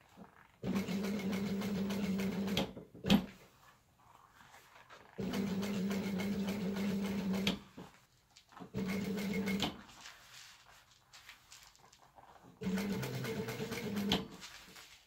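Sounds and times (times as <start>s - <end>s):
industrial sewing machine stitching: 0.6s - 3.3s, 5.2s - 7.7s, 8.7s - 9.8s, 12.6s - 14.4s.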